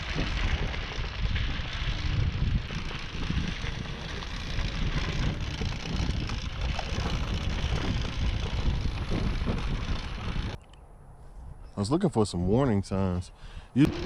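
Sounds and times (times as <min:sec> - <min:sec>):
scooter tyres rumbling on dirt: 0:00.0 - 0:10.6
wind buffeting microphone: 0:00.0 - 0:12.8.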